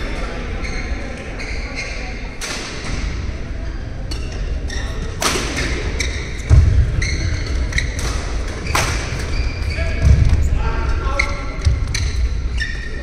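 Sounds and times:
shoes squeaking on court: 3.6 - 10.5, 11.1 - 13.0
heavy low thump: 10.0 - 10.6.

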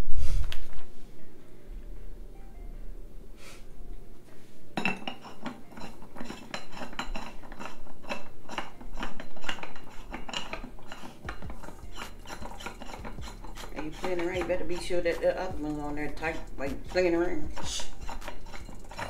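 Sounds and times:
metal pole sections clinking: 4.8 - 19.0.

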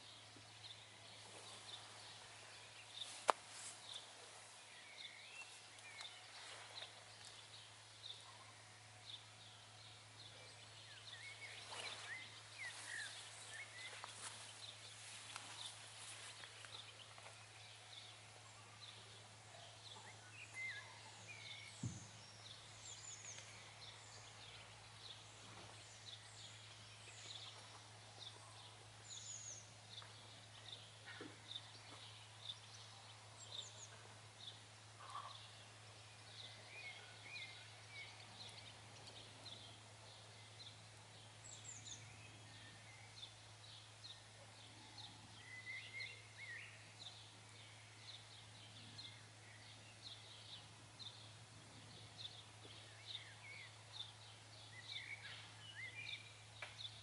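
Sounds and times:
small birds chirping and trilling: 0.0 - 57.0
steady low hum: 0.0 - 57.0
low thump: 21.8 - 22.1.

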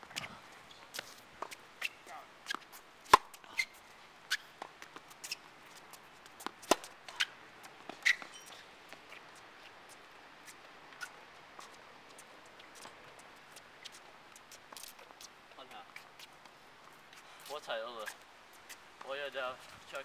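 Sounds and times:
tennis ball bouncing on hard court: 0.9 - 3.4, 6.4 - 7.3
tennis ball struck by rackets: 1.0 - 3.4, 6.4 - 7.3.

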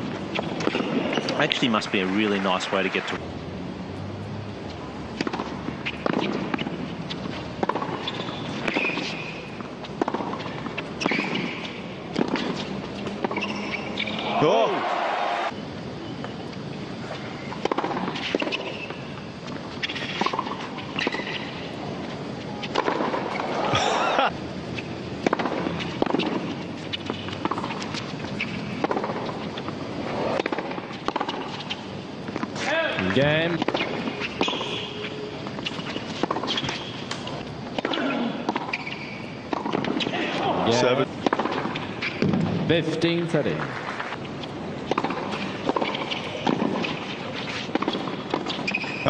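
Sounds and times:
sneakers squeaking on court: 0.0 - 2.5, 4.6 - 14.5, 15.6 - 23.8, 24.7 - 42.4, 43.9 - 49.0
racket hitting tennis ball: 0.1 - 2.1, 5.0 - 14.1, 17.3 - 23.8, 24.9 - 40.6, 41.2 - 42.6, 43.7 - 49.0
crowd noise: 12.0 - 15.6.

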